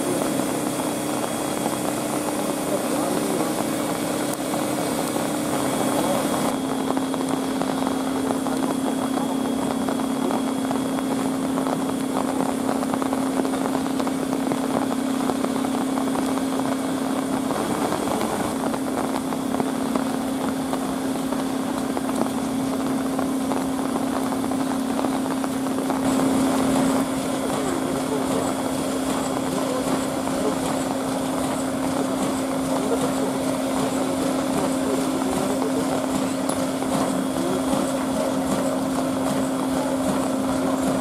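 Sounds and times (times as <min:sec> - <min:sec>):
steam hissing: 0:00.0 - 0:41.0.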